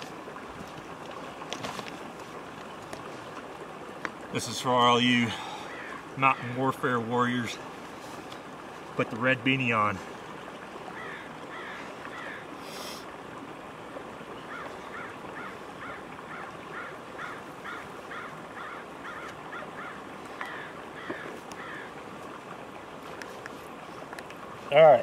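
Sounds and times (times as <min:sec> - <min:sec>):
steady background hiss: 0:00.0 - 0:25.0
birds calling quickly: 0:04.5 - 0:13.0, 0:14.2 - 0:25.0.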